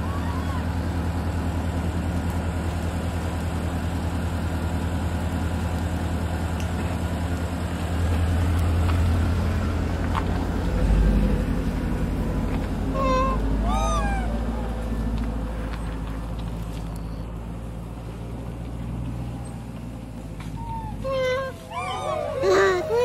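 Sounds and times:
motor engine idling: 0.0 - 23.0.

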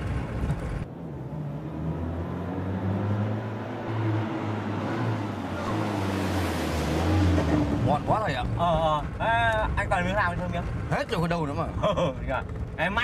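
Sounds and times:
tyre and road noise: 0.0 - 13.0
car engine running: 7.6 - 13.0.

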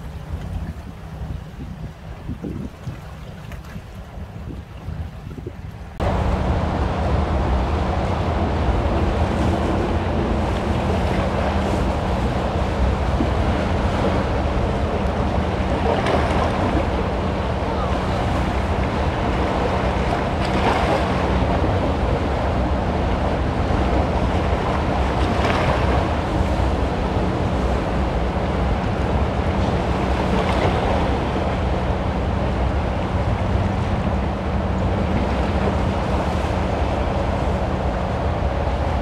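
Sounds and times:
water splashing against rocks: 0.0 - 5.8
wind rumble on microphone: 0.0 - 39.0.

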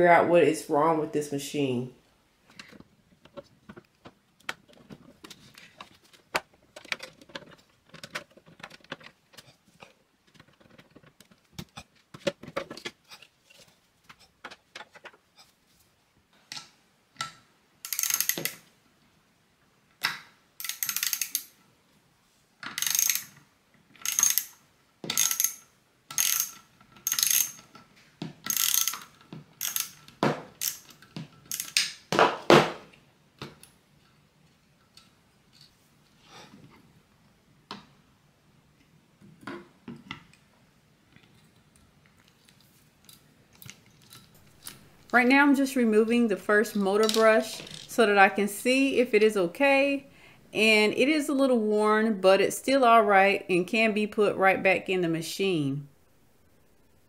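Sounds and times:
clicks and taps of screws: 16.5 - 18.6, 20.0 - 21.6, 22.6 - 23.4, 24.0 - 27.8, 28.4 - 32.0
screwdriver grating on screw: 28.5 - 30.0.

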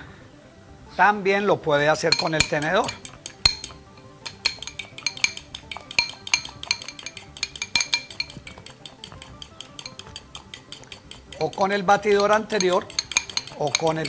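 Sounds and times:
fork clinking against glass jar: 2.0 - 14.0.

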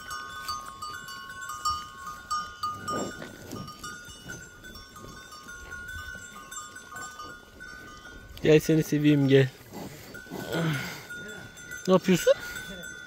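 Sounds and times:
calf snuffling: 0.0 - 8.3, 9.3 - 11.8
high-pitched ringing tones: 0.0 - 8.4.

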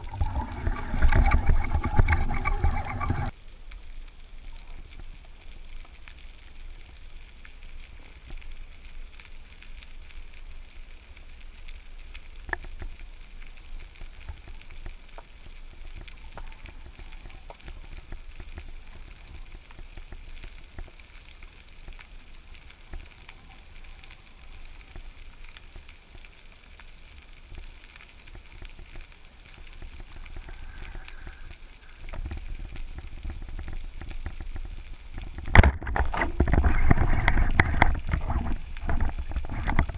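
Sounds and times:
sharp clicks underwater: 0.0 - 3.3, 27.9 - 39.9
faint underwater crackling: 0.0 - 39.9
underwater low rumble: 0.0 - 39.9.

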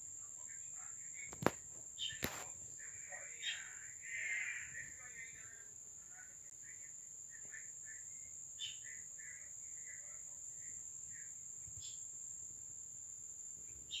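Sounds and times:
bird chirps: 0.4 - 2.4, 3.1 - 5.0, 7.3 - 12.1, 13.7 - 14.0
sharper bird calls: 1.2 - 2.4, 13.8 - 14.0.

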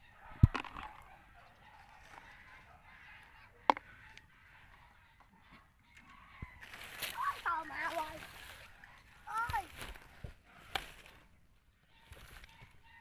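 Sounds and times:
faint honking of fowl: 0.0 - 13.0.

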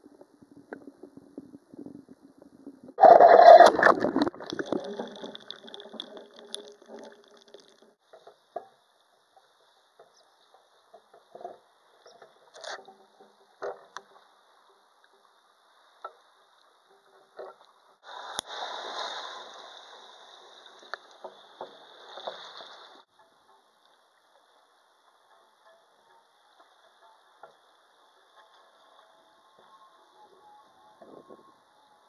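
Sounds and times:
underwater clicks and knocks: 0.1 - 15.3, 16.0 - 17.9
rushing water noise: 3.0 - 7.9, 18.1 - 23.1.

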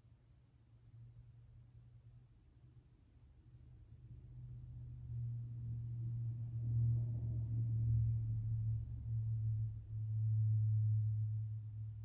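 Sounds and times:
low humming tone: 5.1 - 12.0.

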